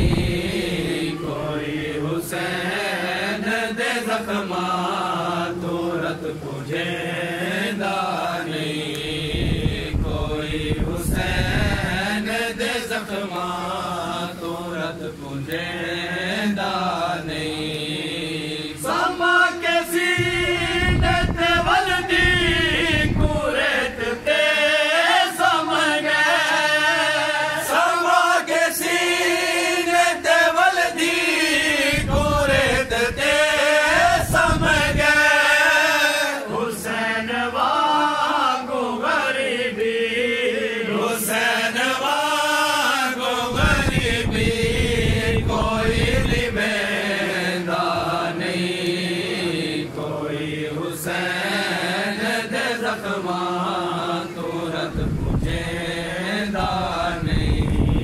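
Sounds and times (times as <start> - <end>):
men chanting in unison: 0.0 - 58.0.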